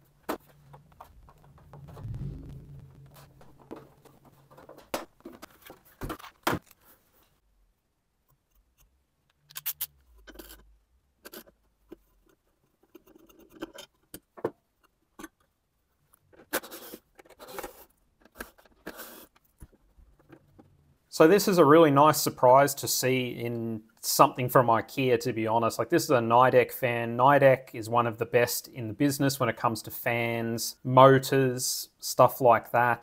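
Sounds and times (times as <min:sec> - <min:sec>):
clicks knocks and scrapes of parts: 0:08.3 - 0:20.8.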